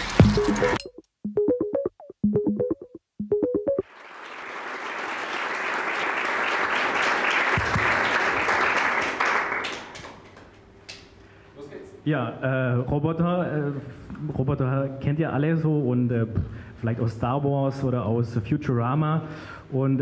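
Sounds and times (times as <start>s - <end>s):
audience applause: 3.8s - 10.6s.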